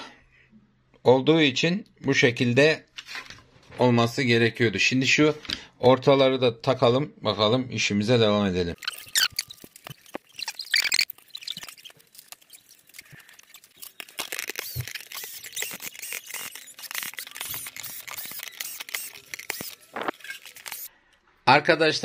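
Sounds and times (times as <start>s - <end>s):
plastic parts clicking: 8.8s - 20.9s
screws squeaking into plastic: 8.8s - 20.9s
cordless drill driving screws: 13.9s - 20.9s.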